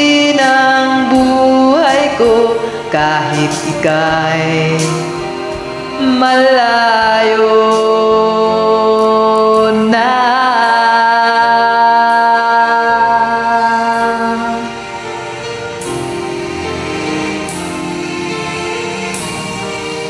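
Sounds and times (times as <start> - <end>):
karaoke backing music: 0.0 - 20.0.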